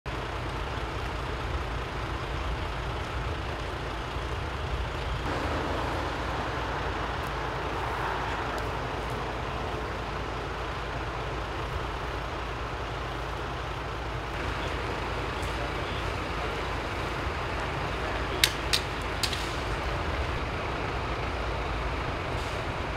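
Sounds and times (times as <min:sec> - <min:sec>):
vehicle engines and road noise: 0:00.0 - 0:22.9
loud rushing noise: 0:05.2 - 0:11.4.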